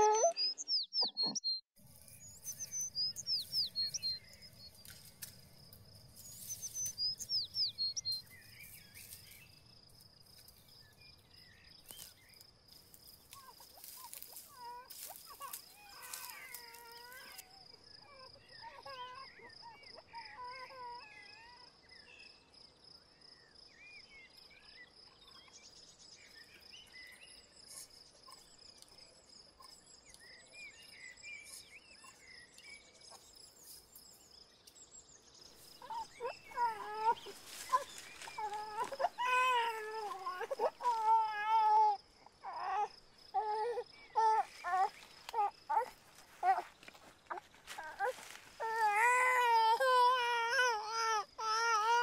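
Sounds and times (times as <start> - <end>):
infant crying: 35.8 - 46.7, 47.3 - 52.0.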